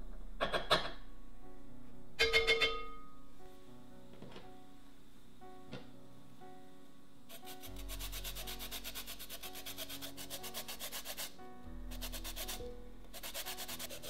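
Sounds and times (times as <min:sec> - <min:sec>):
lemon peel scraping on grater: 0:07.3 - 0:11.4, 0:12.0 - 0:12.6, 0:13.2 - 0:14.0.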